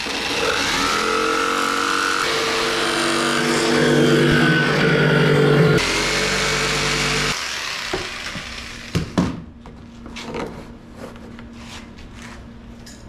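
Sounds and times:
jigsaw cutting plastic: 0:00.0 - 0:04.2.

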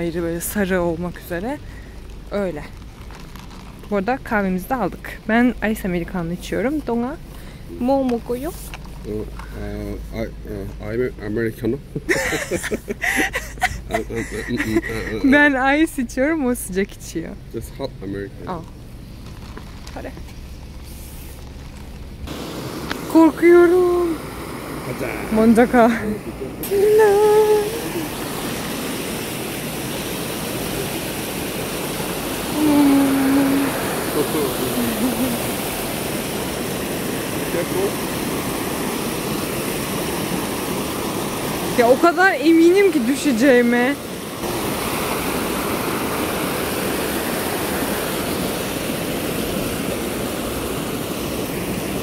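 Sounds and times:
person's voice holding a note: 0:09.1 - 0:11.6, 0:13.8 - 0:15.4
river water rushing over rocks: 0:22.3 - 0:52.0.

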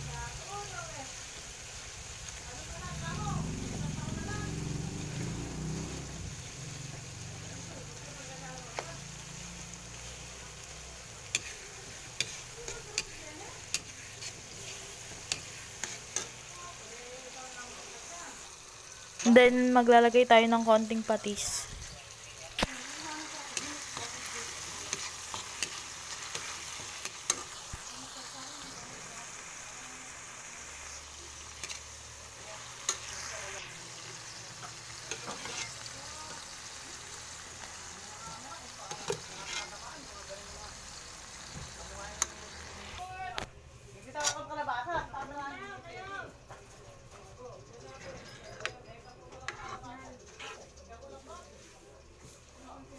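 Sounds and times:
vegetables sizzling in oil: 0:00.0 - 0:52.9
metal ladle scraping a wok: 0:08.8 - 0:16.8, 0:21.4 - 0:27.8, 0:31.5 - 0:32.0, 0:34.6 - 0:37.7, 0:38.9 - 0:40.0, 0:44.1 - 0:44.5, 0:49.3 - 0:50.8.

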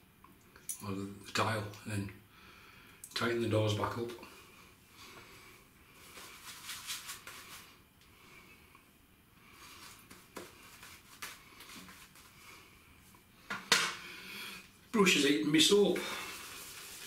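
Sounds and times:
shaving brush swishing: 0:06.0 - 0:07.8, 0:09.6 - 0:12.5, 0:15.7 - 0:17.0.

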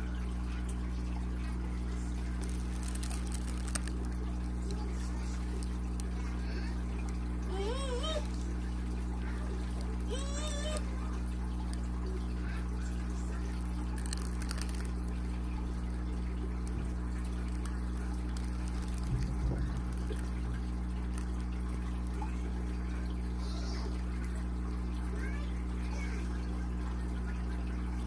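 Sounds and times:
small water pump humming: 0:00.0 - 0:28.0
water trickling: 0:00.0 - 0:28.0.

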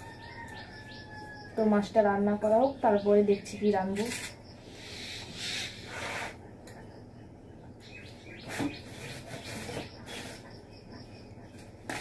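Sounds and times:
rustling and scraping of objects: 0:03.8 - 0:06.9, 0:08.4 - 0:12.0.

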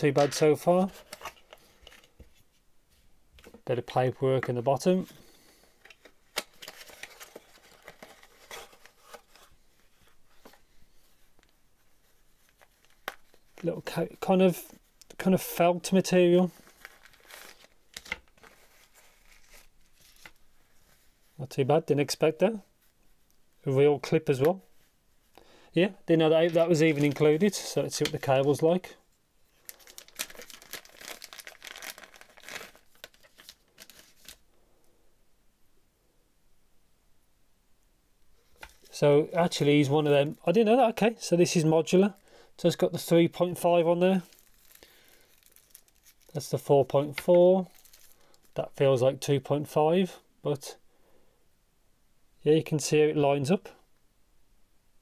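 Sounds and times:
paper wrapping crinkling: 0:05.4 - 0:10.6, 0:11.3 - 0:13.7, 0:16.4 - 0:21.0, 0:26.4 - 0:28.6, 0:29.5 - 0:34.4, 0:44.1 - 0:48.6
cardboard and pouch handling rustles: 0:05.8 - 0:13.7, 0:16.5 - 0:21.2, 0:26.4 - 0:28.5, 0:29.5 - 0:34.4, 0:44.2 - 0:46.5, 0:47.1 - 0:48.6.

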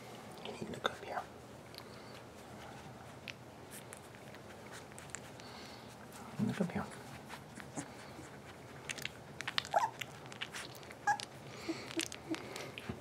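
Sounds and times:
puppies squeaking: 0:07.5 - 0:12.8.

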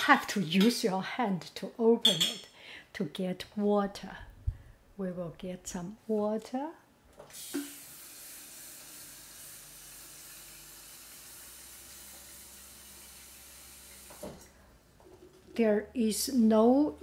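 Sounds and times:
faucet running into kettle: 0:07.3 - 0:14.5.

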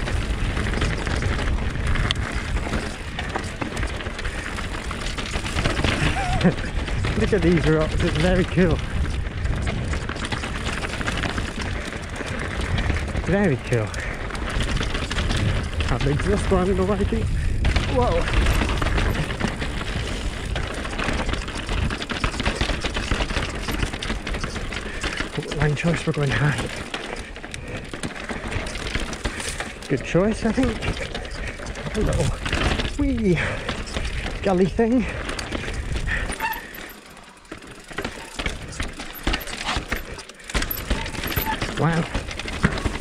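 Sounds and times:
wind rumble on microphone: 0:00.0 - 0:23.4
bike clicking and clattering: 0:00.0 - 0:43.0
tyres rolling over stone: 0:00.0 - 0:43.0.

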